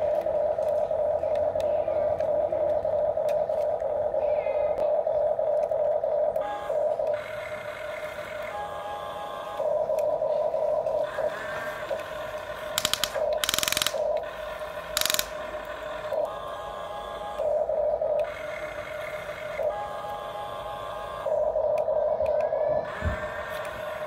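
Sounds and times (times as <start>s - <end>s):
toy excavator motors whining: 5.5s - 24.0s.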